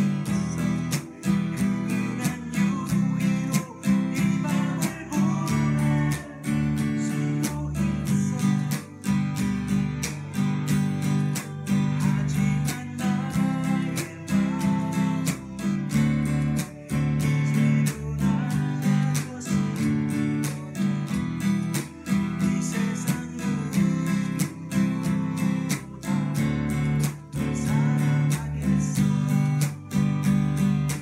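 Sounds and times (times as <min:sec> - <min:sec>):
acoustic guitar strumming: 0:00.0 - 0:31.0.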